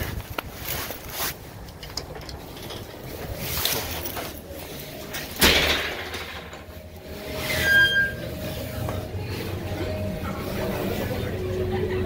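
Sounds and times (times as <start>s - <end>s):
glass door slamming shut: 5.4s - 6.5s.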